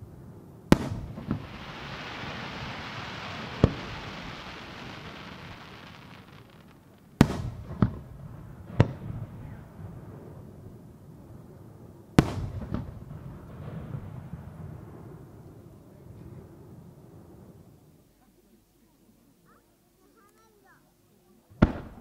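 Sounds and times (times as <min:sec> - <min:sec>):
steady hiss: 0:00.3 - 0:10.0
firework shells bursting: 0:00.8 - 0:08.0.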